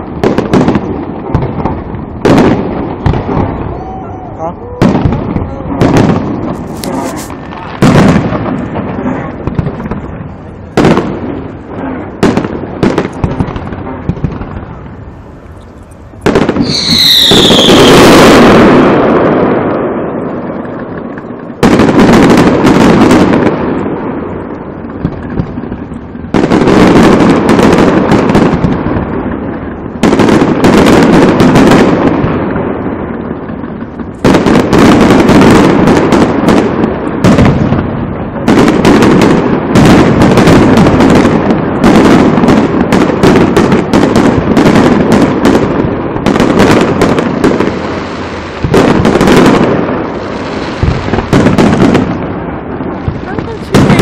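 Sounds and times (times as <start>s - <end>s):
firework crackle: 0.0s - 54.0s
firework shells bursting: 0.2s - 19.7s, 38.4s - 54.0s
falling firework whistle: 3.3s - 5.0s, 15.4s - 19.2s.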